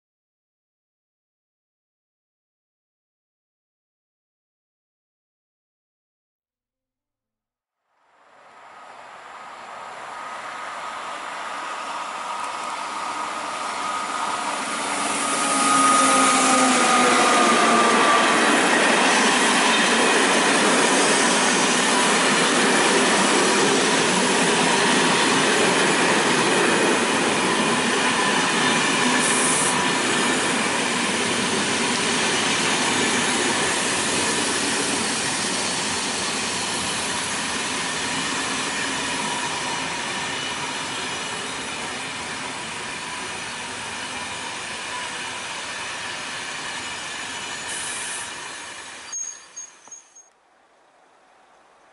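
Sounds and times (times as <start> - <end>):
electric locomotive whine: 8.1 - 50.4
train wheels rolling on rails: 8.3 - 50.3.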